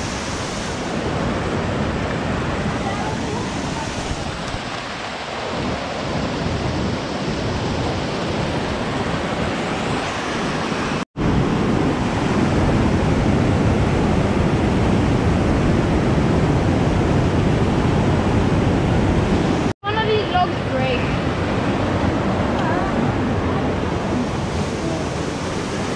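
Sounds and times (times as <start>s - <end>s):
water rushing over cascades: 0.0s - 25.9s.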